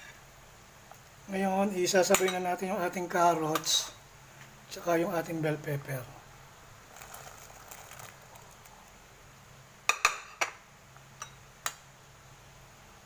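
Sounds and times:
broth boiling: 0:06.1 - 0:09.9.

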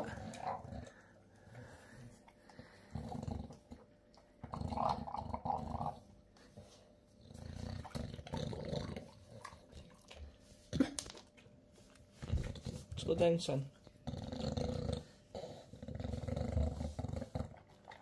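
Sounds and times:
dog chewing and gulping: 0:07.2 - 0:11.5, 0:14.5 - 0:18.0.

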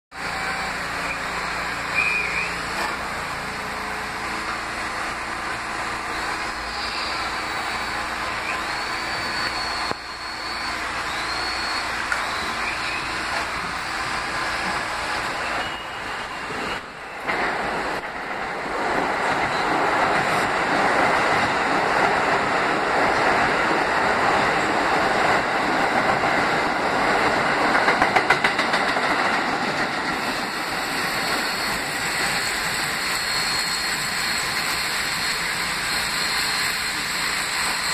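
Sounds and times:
rumble of wheels on rail: 0:00.1 - 0:37.9
high wheel squeals: 0:00.7 - 0:03.1, 0:05.8 - 0:17.3, 0:30.2 - 0:37.9.

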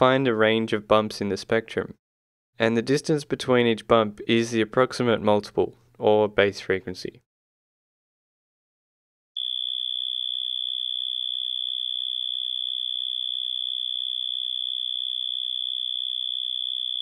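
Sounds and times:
synthesized cricket hum: 0:09.4 - 0:17.0.

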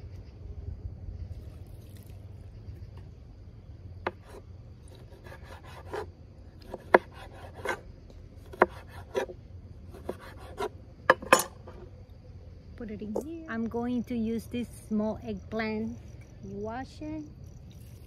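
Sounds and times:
knife rasping through pepper: 0:04.1 - 0:06.1.

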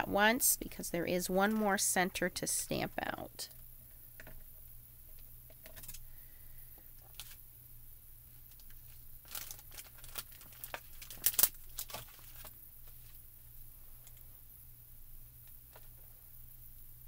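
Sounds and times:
thin plastic crinkling: 0:07.0 - 0:07.4, 0:08.3 - 0:13.2.

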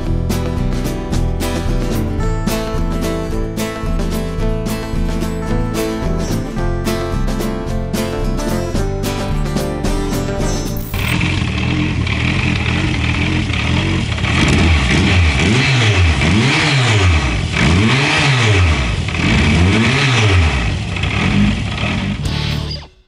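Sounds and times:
motorcycle engine revving: 0:10.5 - 0:22.9.

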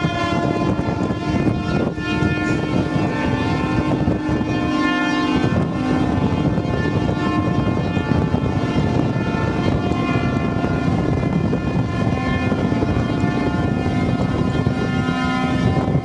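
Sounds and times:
boat horns sounding: 0:00.0 - 0:16.0
sea: 0:00.0 - 0:16.0
wind: 0:00.0 - 0:16.0.

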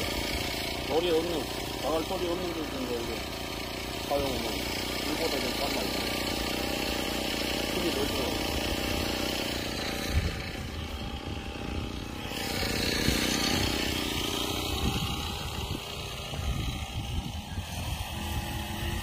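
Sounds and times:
brush cutter engine running: 0:00.0 - 0:19.0.

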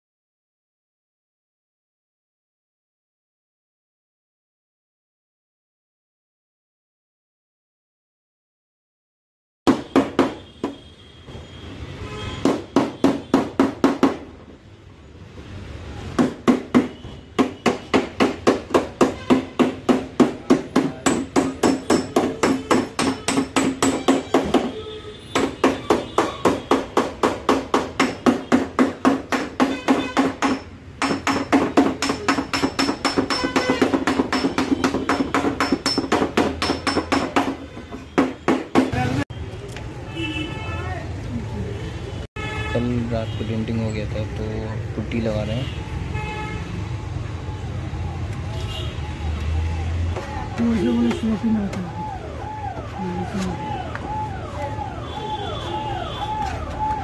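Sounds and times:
hammer striking metal panel: 0:16.2 - 0:24.8, 0:25.4 - 0:39.0.

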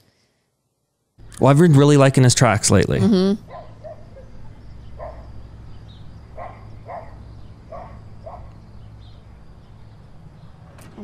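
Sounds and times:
steady low hum: 0:01.2 - 0:10.6
faint dog barking: 0:03.5 - 0:05.4, 0:06.4 - 0:08.6.

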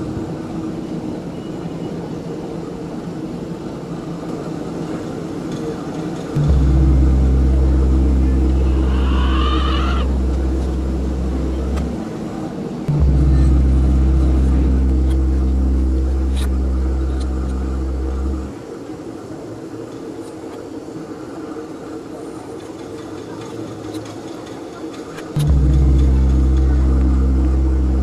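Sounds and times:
loud deep steady drone: 0:04.4 - 0:19.8, 0:25.3 - 0:28.0
higher wavering sound: 0:06.4 - 0:18.6, 0:25.4 - 0:28.0.

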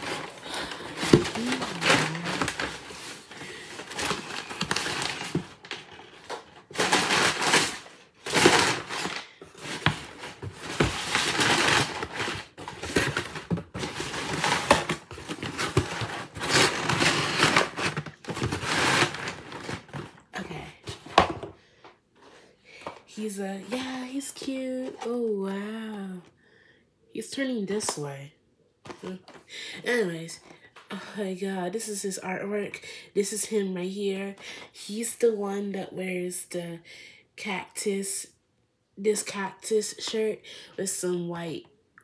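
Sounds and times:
paper and cardboard rustling: 0:00.0 - 0:20.2.

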